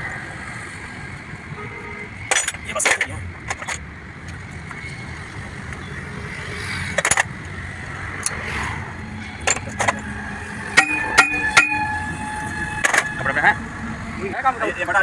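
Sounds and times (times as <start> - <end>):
metal rod clinking on wheel hub: 2.3 - 3.8, 7.0 - 7.3, 9.4 - 13.2.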